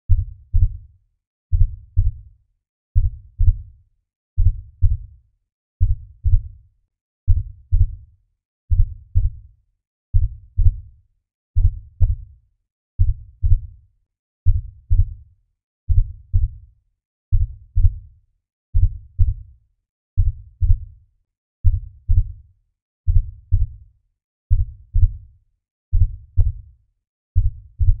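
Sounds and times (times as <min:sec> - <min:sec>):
heartbeat thumps: 0:01.5 - 0:02.2, 0:27.4 - 0:28.0.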